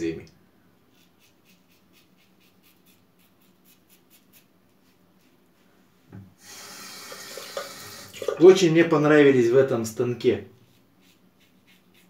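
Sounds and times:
razor scraping stubble: 0.9 - 5.5, 10.6 - 12.0
tap running into sink: 7.0 - 8.4.

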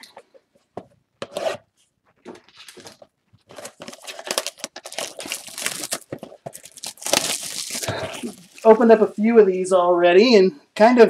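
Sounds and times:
box handling noise: 0.7 - 8.8
shrink-wrap crinkling and tearing: 2.3 - 9.1.

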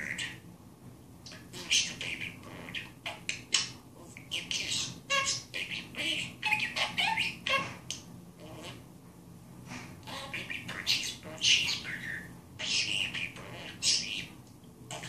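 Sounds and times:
parrot chirping and squawking: 0.0 - 0.4, 1.3 - 8.9, 10.0 - 15.0.

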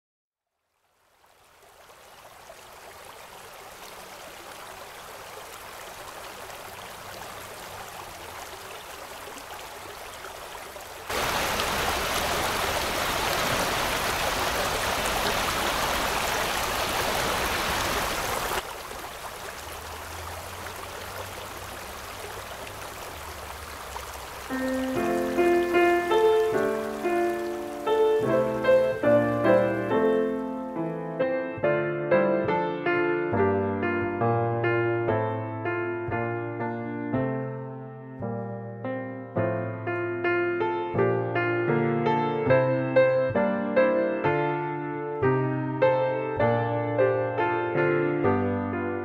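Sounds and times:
creek water rushing: 0.7 - 31.2
piano music: 24.5 - 49.0.

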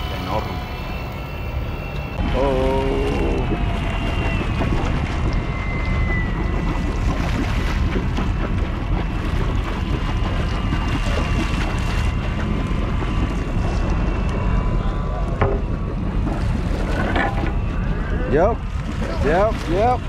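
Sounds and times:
faint high whine: 0.0 - 7.7, 10.2 - 19.4
boat engine running: 0.0 - 20.0.

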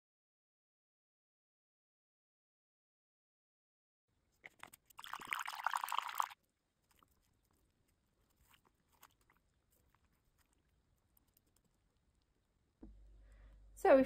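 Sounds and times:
soft wet sounds: 4.2 - 13.5
hand swishing water in bowl: 4.4 - 11.6.

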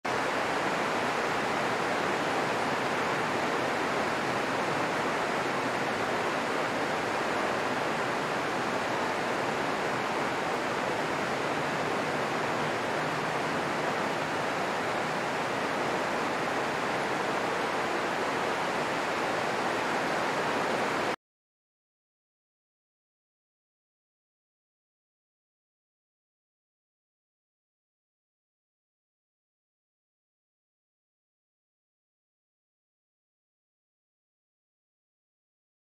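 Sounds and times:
rain falling on foliage: 0.1 - 21.2.

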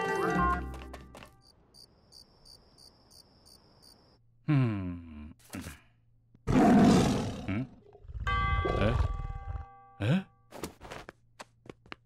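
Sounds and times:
crickets chirping: 1.2 - 4.2.

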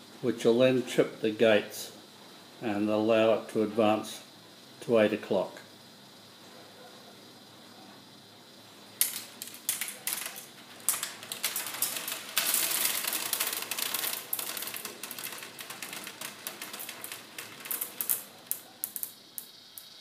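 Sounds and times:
marbles clattering down wooden tracks: 9.0 - 19.9.

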